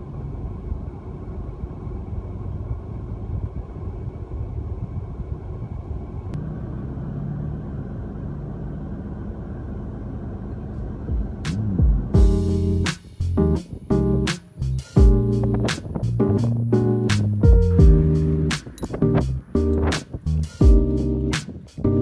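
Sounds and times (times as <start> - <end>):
car engine and tyre rumble: 0.0 - 22.0.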